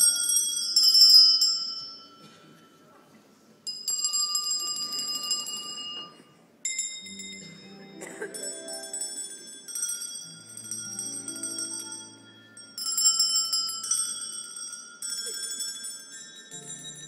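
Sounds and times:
ringing bell-like notes: 3.7s - 17.0s.

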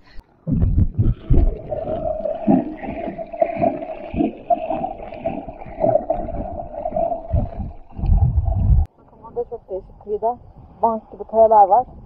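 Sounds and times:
underwater gurgling and sloshing: 0.0s - 8.9s
wavering mid-pitched hum: 0.0s - 8.9s
water surges: 1.1s - 8.9s.

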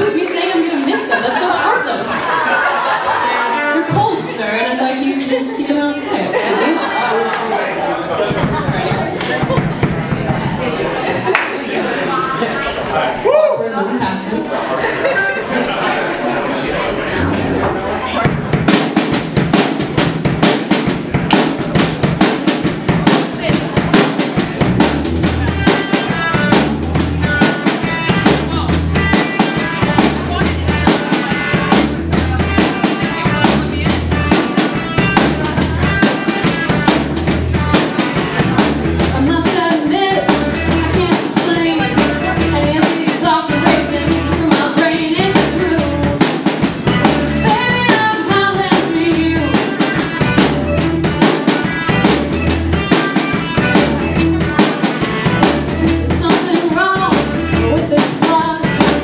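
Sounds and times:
live rock band playing: 0.0s - 7.4s, 8.1s - 16.1s, 16.7s - 59.0s
woman singing: 39.2s - 46.3s, 47.4s - 49.6s, 56.1s - 58.8s.

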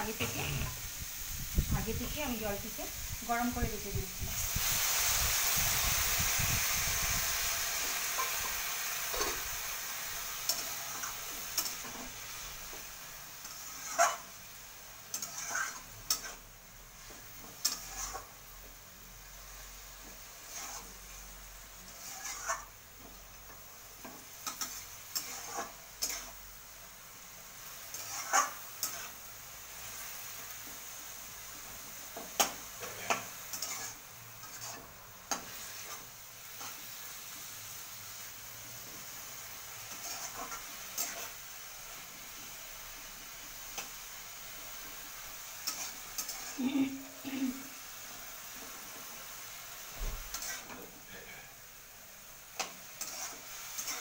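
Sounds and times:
food sizzling in a pan: 0.0s - 54.0s
metal spoon scraping a pan: 8.0s - 9.5s, 10.2s - 12.4s, 13.4s - 14.4s, 15.0s - 18.4s, 20.4s - 22.8s, 23.5s - 26.4s, 27.8s - 29.2s, 32.2s - 36.9s, 39.7s - 41.4s, 45.5s - 46.8s, 50.2s - 51.5s, 52.6s - 54.0s.

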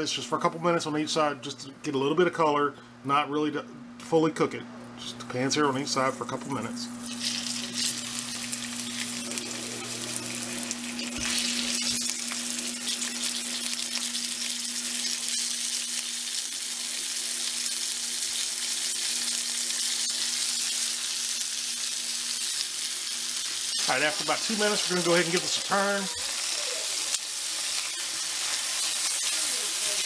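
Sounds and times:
steaks sizzling in oil: 6.9s - 30.0s.

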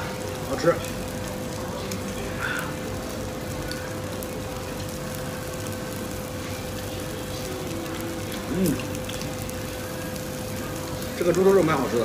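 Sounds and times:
constant hum: 0.0s - 12.0s
food sizzling: 0.0s - 12.0s.

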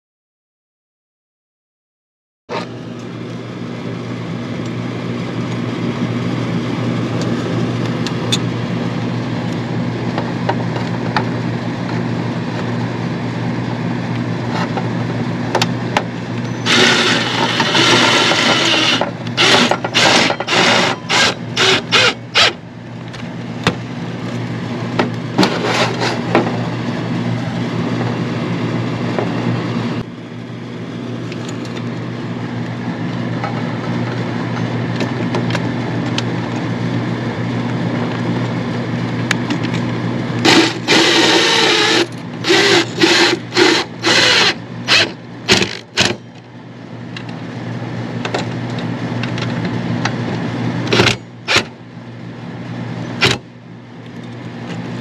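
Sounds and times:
steady low hum: 2.5s - 55.0s
hand tool scraping: 16.5s - 22.2s, 25.4s - 26.3s.

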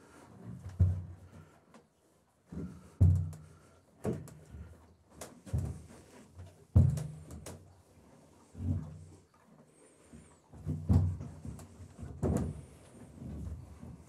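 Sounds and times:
hooves stamping on trailer floor: 0.0s - 1.6s, 2.5s - 7.7s, 10.6s - 14.0s.

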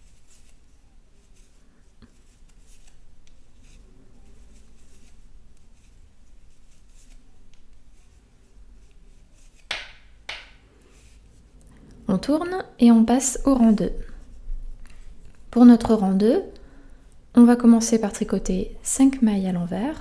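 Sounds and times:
knitting needles clicking: 9.6s - 10.6s
sharp knocks: 9.7s - 10.6s.

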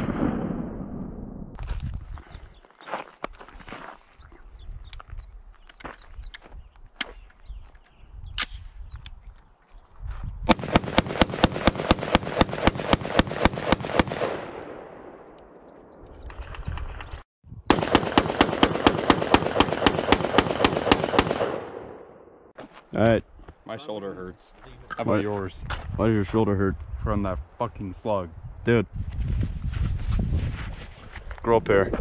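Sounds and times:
rapid gunfire: 10.5s - 14.9s, 17.7s - 22.0s.

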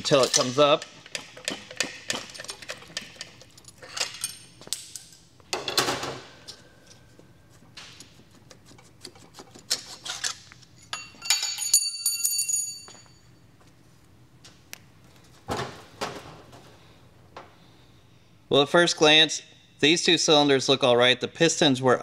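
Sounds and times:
metal clinking and ringing: 0.0s - 1.6s, 10.8s - 13.4s.

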